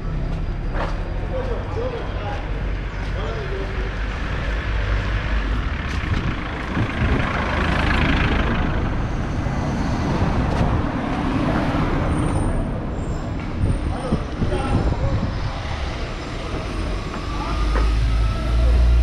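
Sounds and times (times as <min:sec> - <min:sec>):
low engine rumble: 0:00.0 - 0:19.0
vehicle driving past: 0:03.8 - 0:14.2.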